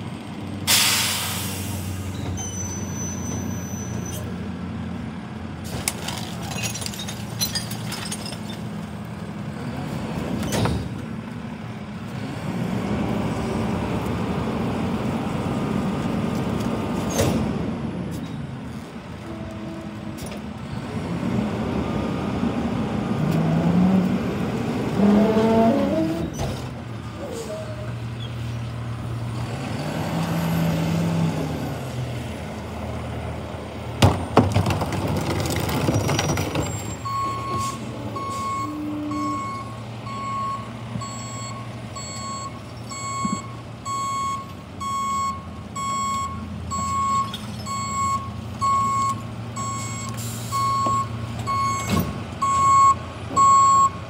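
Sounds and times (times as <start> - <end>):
truck engine revving: 20.7 - 26.4.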